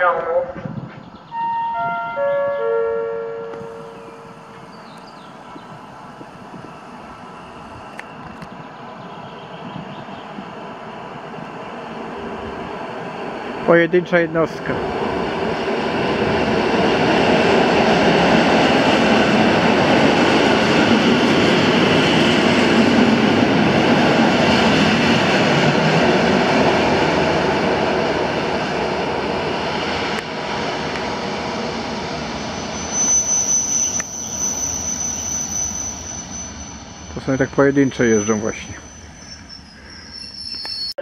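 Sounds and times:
electric train passing: 0.0s - 41.0s
high steady squeal: 3.5s - 8.2s, 30.9s - 41.0s.

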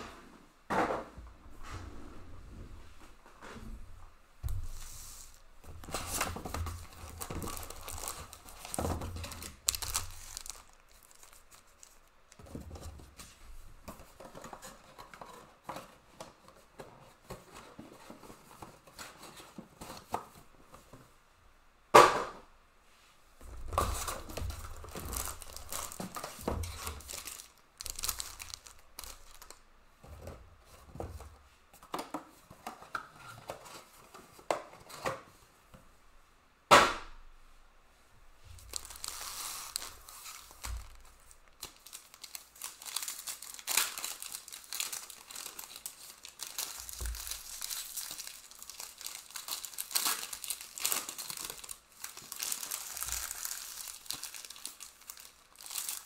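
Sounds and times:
foil packs crinkling: 5.2s - 12.5s, 23.8s - 29.6s, 38.6s - 56.0s
wrapper tearing: 5.3s - 12.4s, 23.8s - 29.6s, 38.6s - 56.0s
sharp knock: 36.7s - 37.1s.

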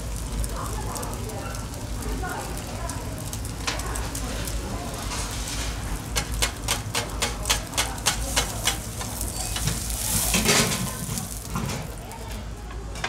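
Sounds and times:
hot griddle hiss: 0.0s - 12.7s
sizzling: 0.0s - 13.0s
metal scrapers clacking on griddle: 3.4s - 13.0s
scraper scraping griddle: 4.3s - 6.4s, 7.2s - 11.8s.

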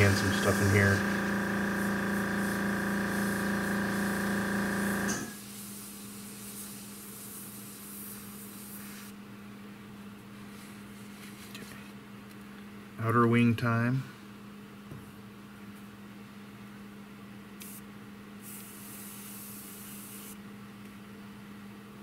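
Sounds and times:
air compressor humming: 0.0s - 5.8s
airbrush hissing: 0.0s - 9.1s, 18.4s - 20.4s.

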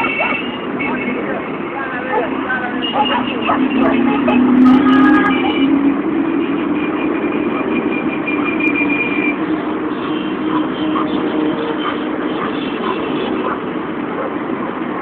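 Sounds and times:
motorcycles riding past: 0.0s - 8.5s.

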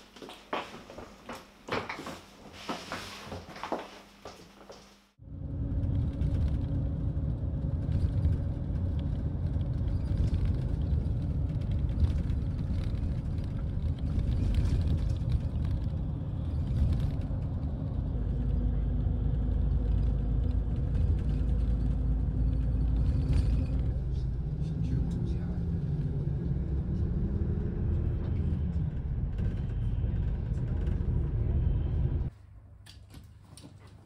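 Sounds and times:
bus engine and tyre rumble: 5.2s - 32.3s.

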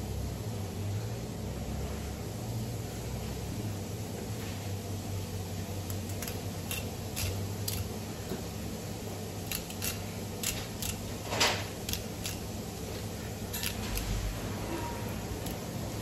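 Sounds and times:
knife scraping fish bones: 6.0s - 8.0s, 9.4s - 15.9s.

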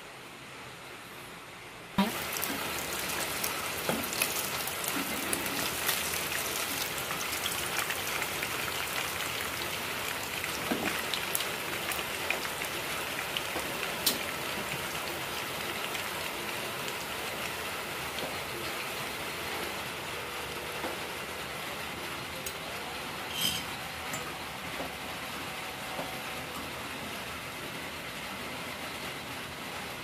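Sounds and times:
fish frying in hot oil: 2.0s - 25.2s.

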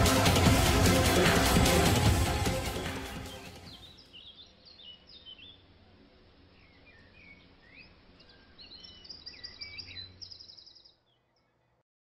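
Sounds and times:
music: 0.0s - 4.0s
birds chirping and whistling: 2.7s - 5.6s, 6.6s - 11.6s.

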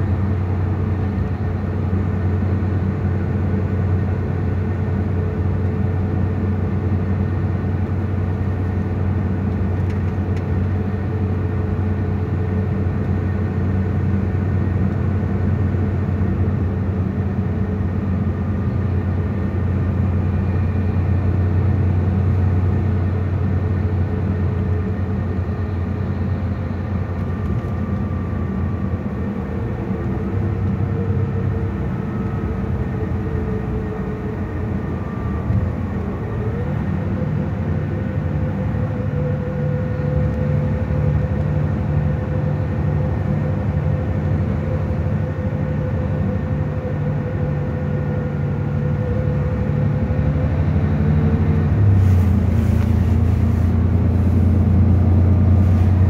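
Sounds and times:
coach engine and road rumble: 0.0s - 56.0s.

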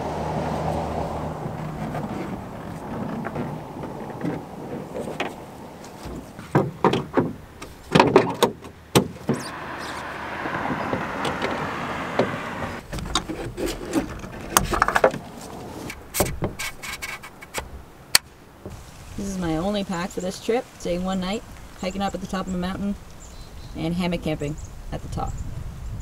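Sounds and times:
sliding scrape: 0.4s - 6.6s, 9.2s - 17.6s
canoe knocks and bumps: 0.7s - 9.5s.

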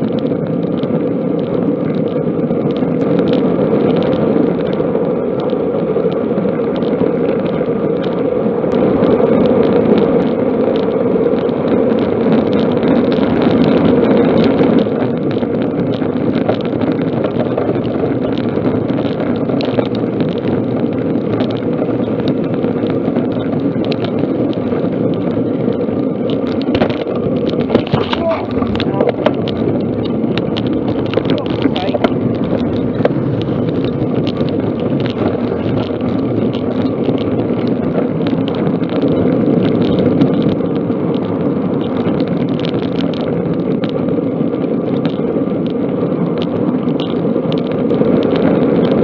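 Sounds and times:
road and wind noise: 0.0s - 49.0s
van driving alongside: 0.0s - 49.0s.

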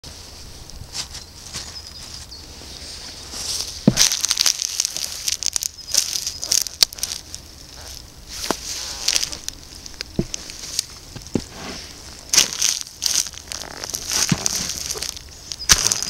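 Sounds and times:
wrapper crackling and crunching: 3.9s - 11.2s, 12.0s - 16.0s.

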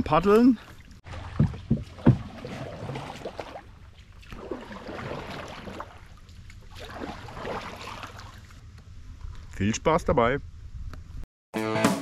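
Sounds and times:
paddle splashing through water: 0.7s - 8.6s
paddle knocking: 1.1s - 6.0s.

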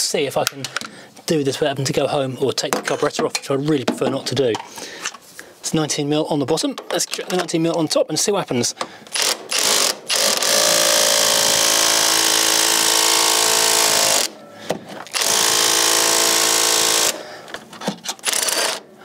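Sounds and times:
cordless power tool motor running: 9.2s - 14.4s, 15.1s - 17.2s, 18.2s - 18.8s.

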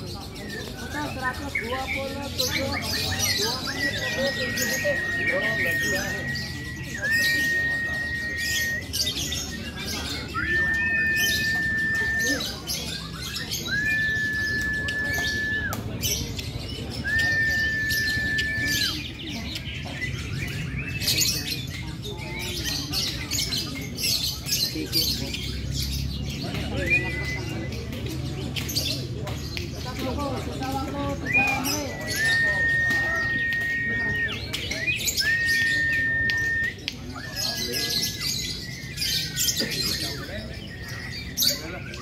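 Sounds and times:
lovebirds chattering and trilling: 0.0s - 42.0s
steady high whistle tone: 3.8s - 8.9s.

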